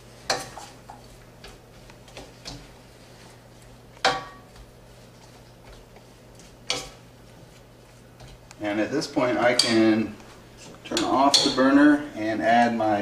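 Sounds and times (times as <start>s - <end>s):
utensil stirring in a metal wok: 0.0s - 10.0s.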